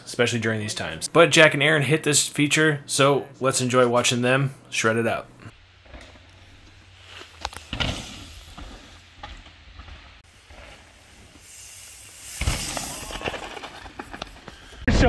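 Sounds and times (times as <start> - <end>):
bike tyres rolling over dirt: 5.5 - 15.0.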